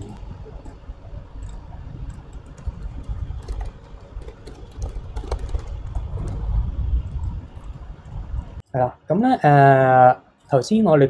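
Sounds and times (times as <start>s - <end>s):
keyboard typing: 0.0s - 8.2s
low steady rumble: 0.0s - 10.4s.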